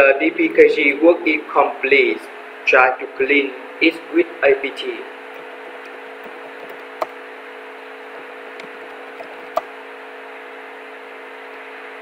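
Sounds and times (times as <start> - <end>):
low electrical hum: 0.0 - 12.0
faint ticks: 5.3 - 7.2
sharp clicks: 5.3 - 7.2, 8.6 - 9.7.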